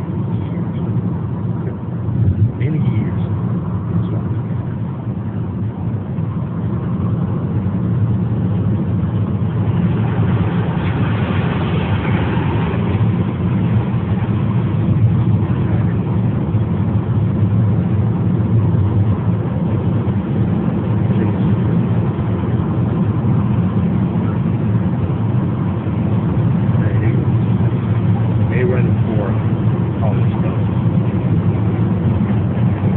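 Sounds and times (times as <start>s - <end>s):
car cabin road and engine noise: 0.0s - 32.9s.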